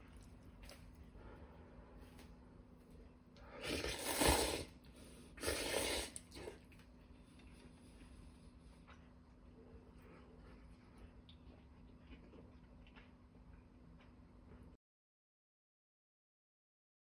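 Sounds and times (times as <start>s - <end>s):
person slurping noodles: 3.4s - 6.7s.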